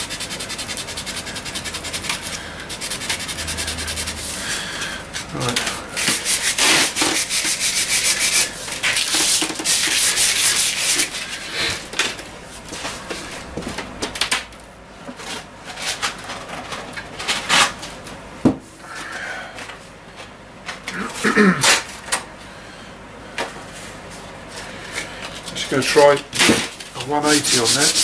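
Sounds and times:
sandpaper rubbing on wood: 0.0s - 4.5s, 6.0s - 11.4s, 27.1s - 28.0s.

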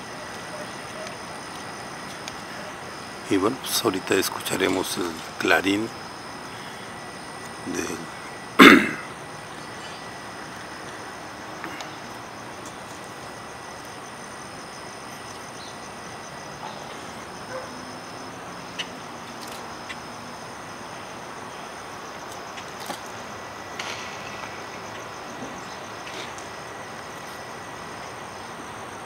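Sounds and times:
steady outdoor hiss: 0.0s - 29.0s.

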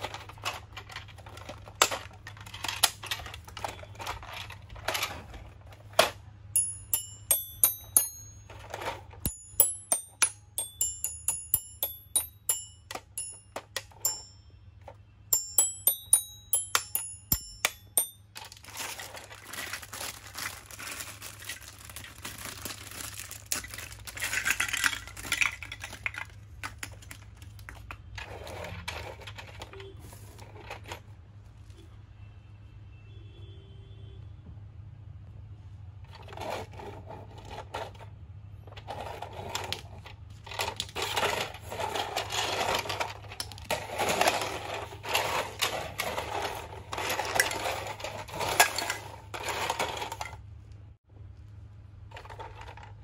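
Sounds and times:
toy xylophone notes: 6.6s - 14.6s, 15.3s - 18.4s
plastic bag crinkling: 18.3s - 26.4s.

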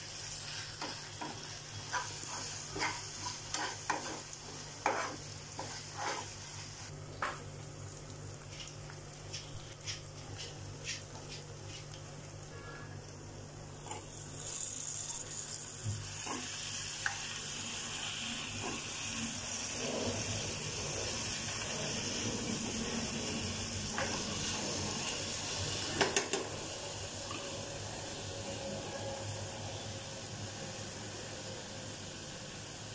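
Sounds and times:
vegetables sizzling in oil: 0.0s - 12.4s, 13.2s - 32.9s
metal spoon scraping a pan: 0.5s - 6.5s.

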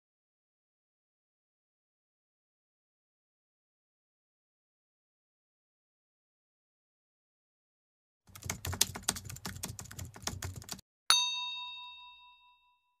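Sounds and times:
bell ding: 11.1s - 13.0s.

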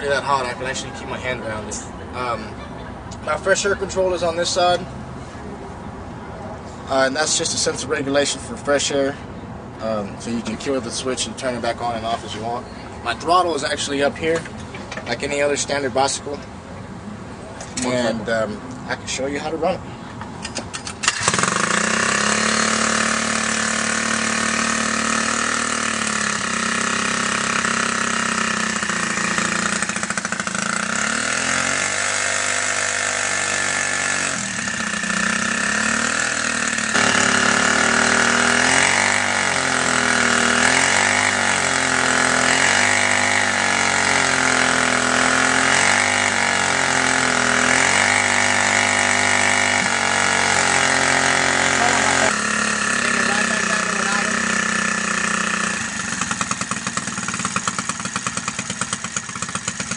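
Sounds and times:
small engine revving: 20.9s - 59.9s.

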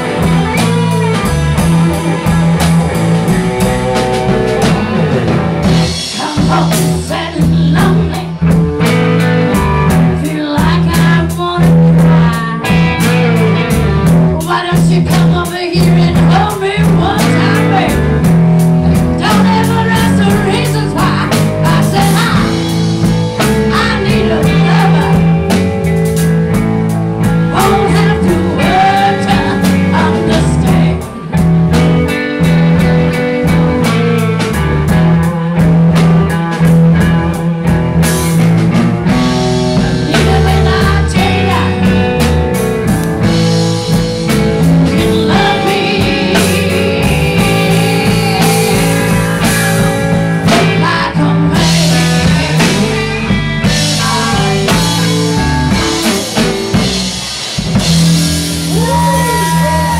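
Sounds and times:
live blues band playing: 0.0s - 59.9s
woman singing: 6.0s - 9.3s, 9.9s - 18.3s, 18.9s - 25.5s, 27.5s - 31.4s, 39.8s - 42.2s, 44.6s - 56.8s.

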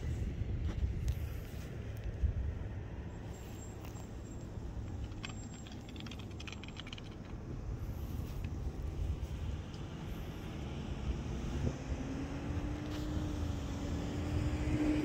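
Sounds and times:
vehicle passing rumble: 0.0s - 15.0s.

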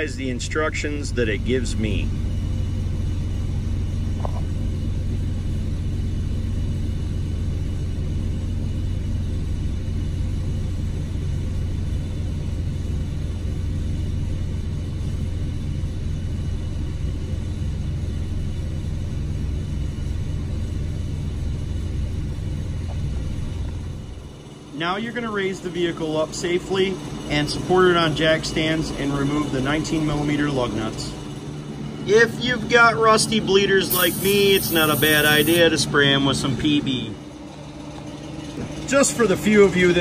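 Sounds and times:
faint constant hum: 0.0s - 40.0s.

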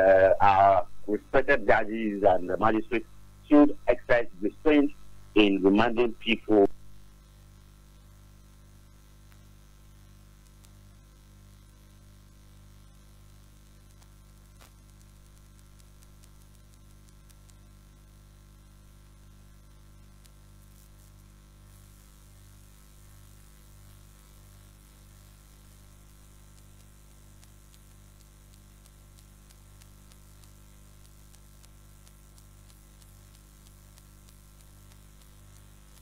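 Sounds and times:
electrical mains hum: 0.0s - 36.0s
faint clicks: 9.2s - 9.5s, 10.4s - 10.8s, 13.8s - 17.7s, 26.5s - 36.0s.

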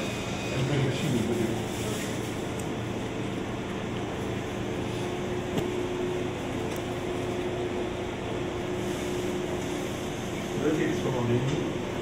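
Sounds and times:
surgical equipment hum: 0.0s - 12.0s.

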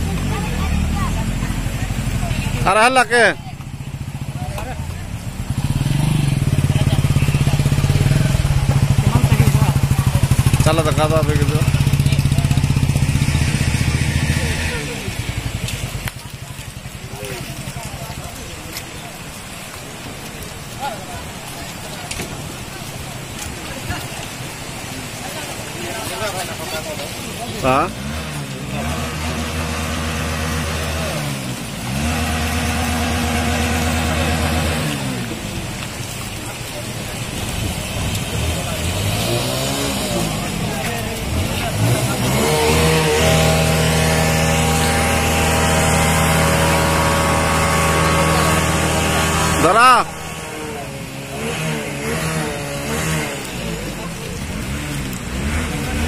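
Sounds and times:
small engine revving: 3.9s - 16.2s, 26.6s - 56.0s
small engine running: 41.6s - 56.0s.

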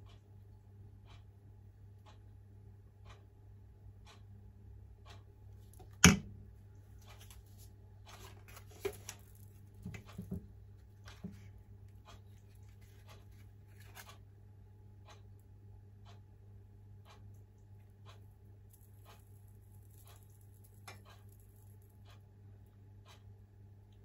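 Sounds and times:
faint ticking: 0.0s - 7.3s, 8.9s - 24.0s
steady low hum: 0.0s - 24.0s.

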